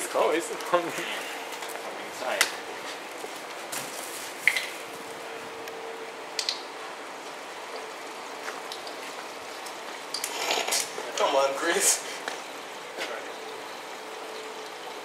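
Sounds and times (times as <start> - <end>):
computer fans running: 0.0 - 15.0
liquid trickling: 6.0 - 15.0.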